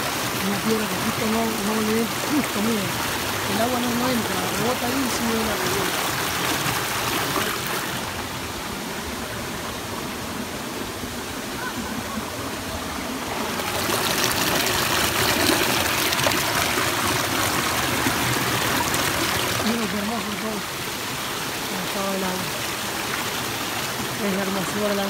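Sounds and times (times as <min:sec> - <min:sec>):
stream rushing over stones: 0:00.0 - 0:25.0.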